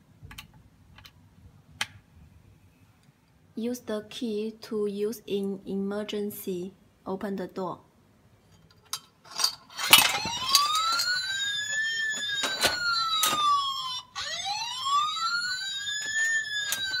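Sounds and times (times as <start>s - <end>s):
electronic alarm siren wailing: 9.9s - 17.0s.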